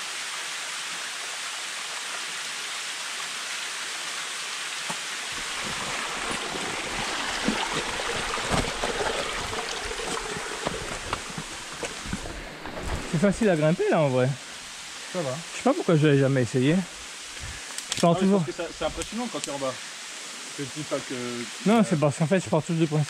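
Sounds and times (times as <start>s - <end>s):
water rushing down rock: 4.7s - 19.7s
knocks and scrapes on rock: 5.4s - 13.5s.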